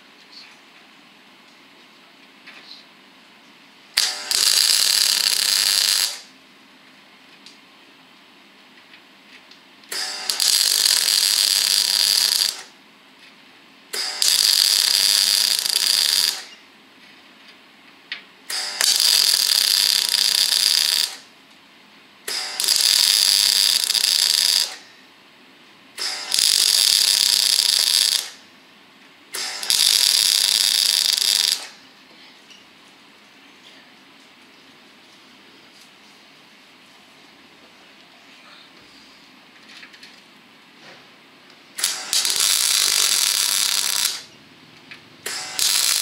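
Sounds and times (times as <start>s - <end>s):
welder arcing on steel: 3.9s - 6.3s, 9.9s - 12.8s, 13.9s - 16.6s, 18.5s - 21.3s, 22.2s - 24.9s, 26.0s - 28.5s, 29.3s - 31.8s, 41.7s - 44.4s, 45.2s - 46.0s.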